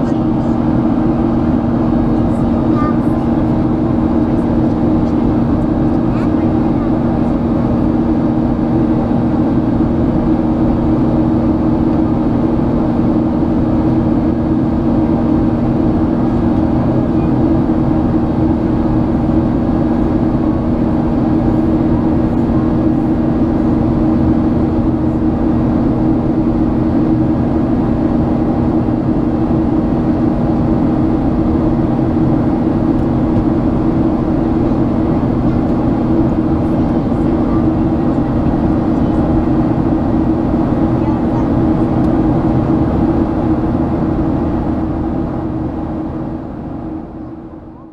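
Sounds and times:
jet engines droning: 0.0s - 47.9s.

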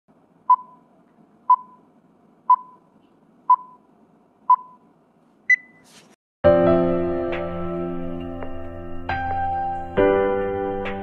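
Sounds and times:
countdown beeps: 0.5s - 0.8s, 1.5s - 1.8s, 2.5s - 2.9s, 3.5s - 3.8s, 4.5s - 4.8s.

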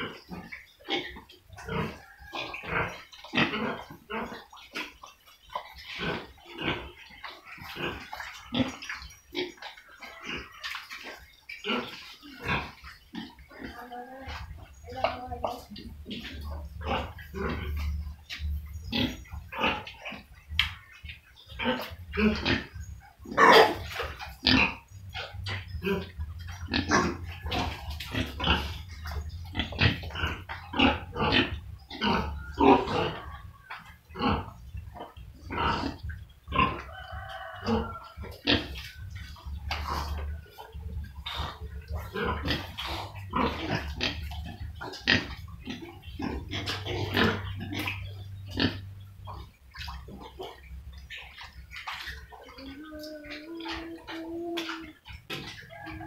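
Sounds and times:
pig grunts: 0.0s - 4.6s, 5.9s - 7.0s, 7.6s - 10.7s, 11.6s - 20.4s, 21.5s - 38.8s, 39.8s - 49.5s
pigs slurping muddy water: 0.0s - 56.0s
low steady hum: 13.9s - 56.0s.

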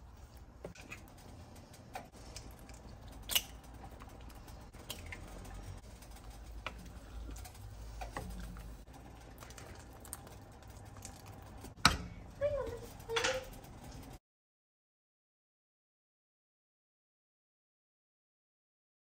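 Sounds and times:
wooden spoon stirring thick soup: 0.0s - 14.2s.

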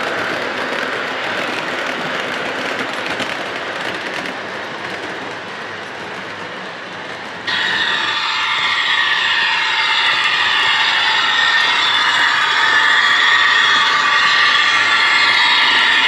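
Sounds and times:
high electric locomotive whine: 0.0s - 16.0s
model train rolling on metal track: 0.0s - 16.0s.

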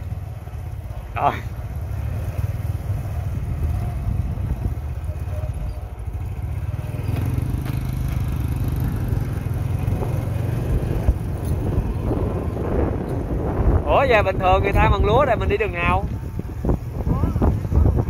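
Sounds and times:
motorbike engine running: 0.0s - 18.0s
light knocks from riding: 7.1s - 8.4s.

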